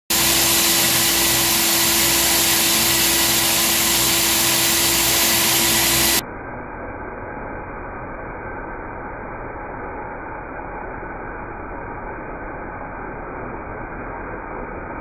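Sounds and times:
core drill boring into concrete: 0.1s - 6.2s.

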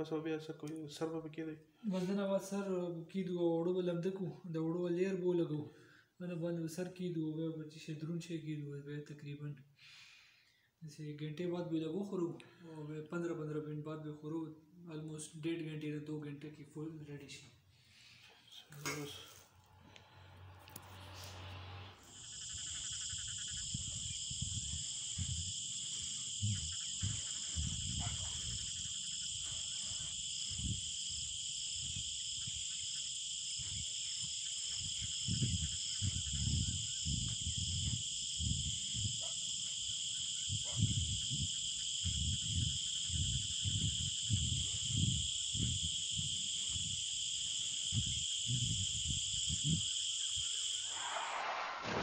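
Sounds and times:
insects chirping: 17.7s - 52.0s.

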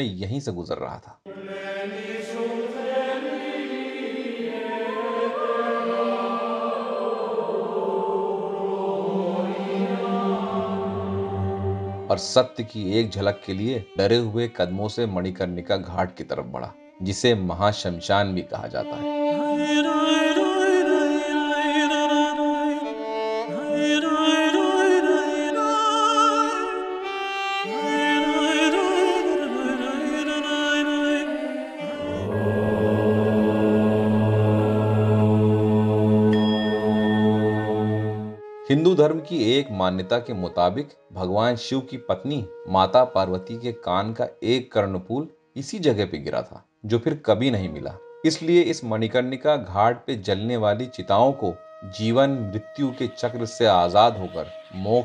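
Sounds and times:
slow choir-like chanting: 1.3s - 12.2s, 19.1s - 38.5s
slow background music: 1.3s - 55.0s.

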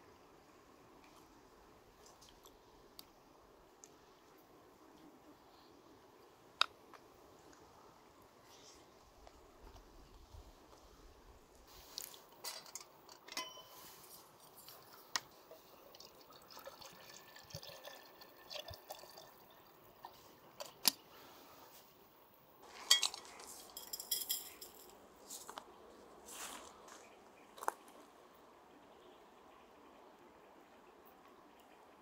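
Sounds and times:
metal teapot and lid clinking: 12.6s - 13.8s, 22.9s - 24.9s.

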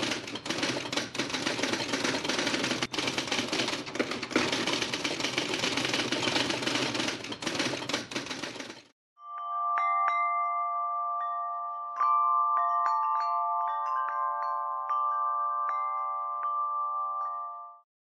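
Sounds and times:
bell-like chime tones: 9.2s - 17.8s.

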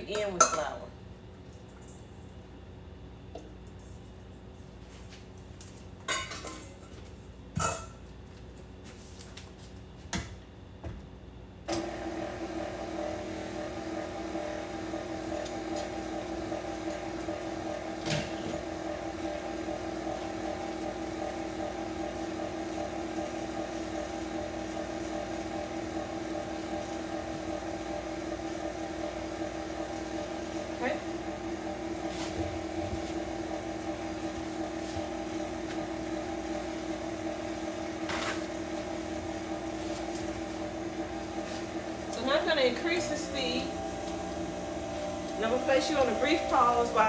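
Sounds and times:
metal bowl and utensils clinking: 0.1s - 0.8s
stand mixer motor hum: 11.7s - 47.0s.

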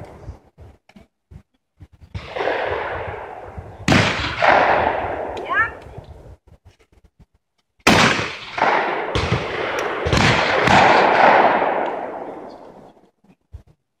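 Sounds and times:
echoing shotgun shots: 2.2s - 5.4s, 7.8s - 13.0s.

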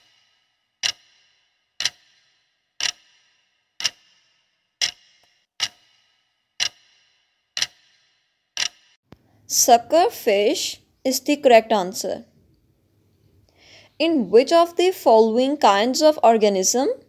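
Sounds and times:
clock ticking: 0.0s - 9.0s.

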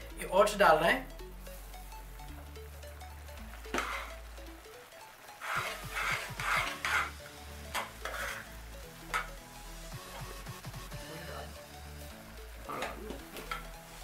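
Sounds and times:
fork scraping metal saucepan: 5.4s - 8.5s.

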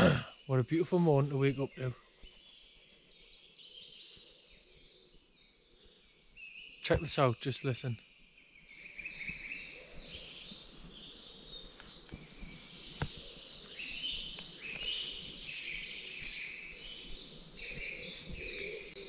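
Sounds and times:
birds warbling: 8.7s - 19.0s.

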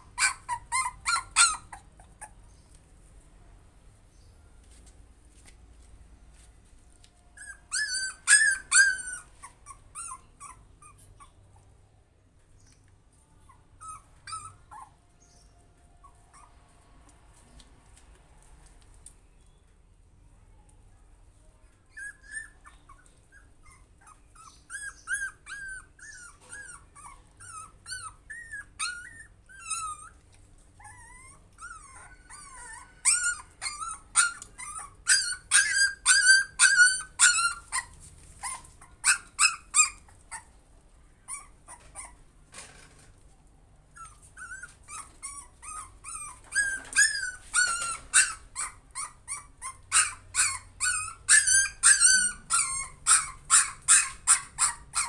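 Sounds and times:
puppy whimpering and yelping: 0.0s - 2.6s, 7.3s - 11.8s, 13.4s - 16.6s, 21.8s - 40.6s, 41.2s - 42.6s, 43.9s - 55.0s.

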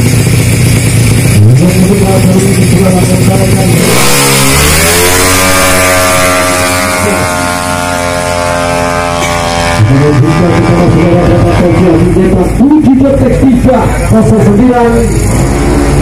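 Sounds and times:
scooter engine revving: 0.0s - 16.0s.

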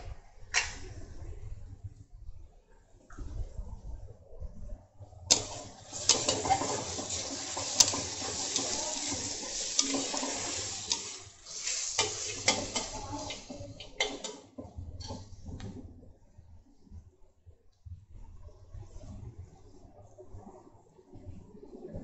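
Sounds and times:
onions sizzling in hot oil: 5.3s - 14.3s
spatula scraping and clicking on pan: 5.3s - 15.2s.

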